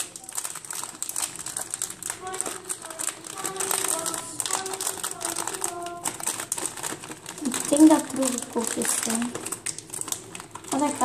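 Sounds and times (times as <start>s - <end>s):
plastic wrapper crinkling: 0.0s - 11.0s.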